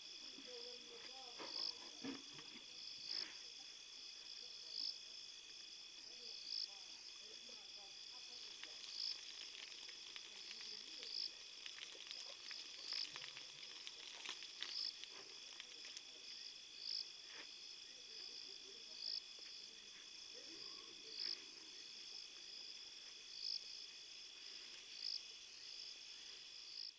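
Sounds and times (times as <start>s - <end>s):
crickets trilling: 0.0s - 26.9s
loud insect chirp: 2.6s - 26.9s
twig snaps and crackles: 8.5s - 16.0s.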